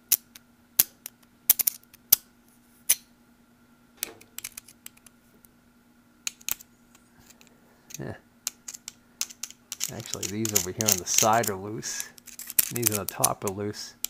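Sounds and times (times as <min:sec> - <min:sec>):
faint steady hum: 0:00.0 - 0:14.0
metallic clicks of bearing rollers: 0:08.5 - 0:13.6.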